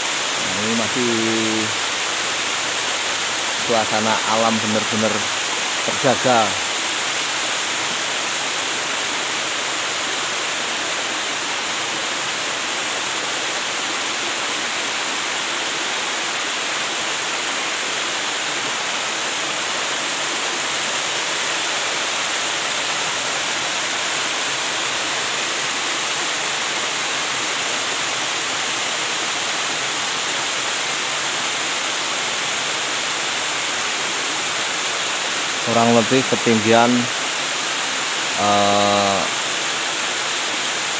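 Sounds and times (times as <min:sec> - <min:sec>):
small waterfall rushing: 0:00.0 - 0:40.9.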